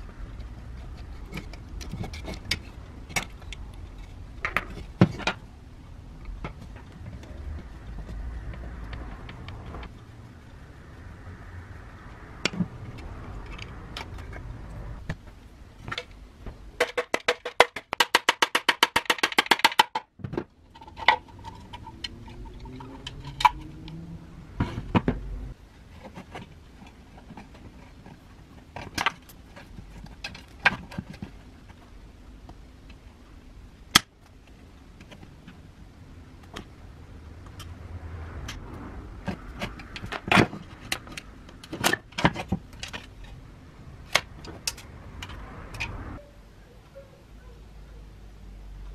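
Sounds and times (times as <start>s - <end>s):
hand tools and metal parts clicking: 0.3s - 5.5s, 16.8s - 32.0s, 39.2s - 46.3s.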